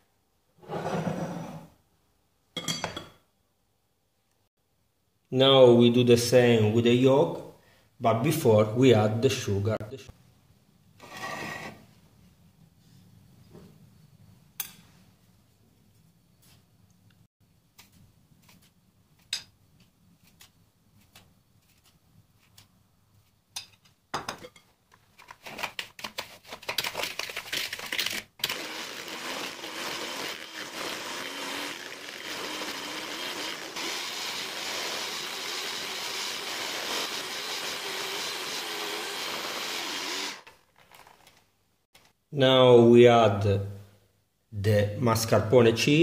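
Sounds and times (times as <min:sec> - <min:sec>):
electric hand mixer whipping: 0:28.4 - 0:40.5.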